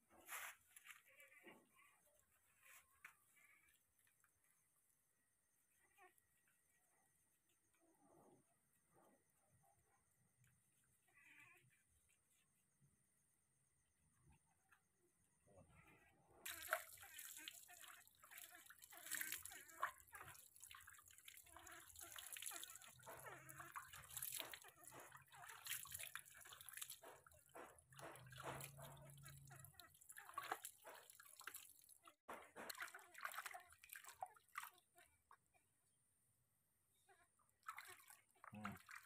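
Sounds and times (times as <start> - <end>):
water dripping and splashing: 16.4 - 35.4, 37.6 - 39.0.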